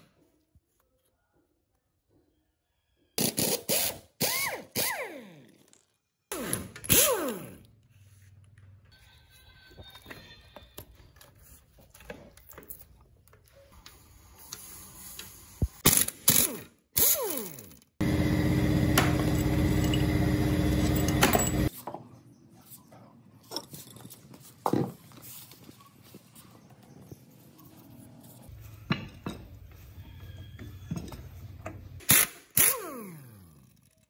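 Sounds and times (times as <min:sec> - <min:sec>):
small motor running: 0:18.0 - 0:21.7
metal tools clinking: 0:18.8 - 0:21.8, 0:23.4 - 0:24.8.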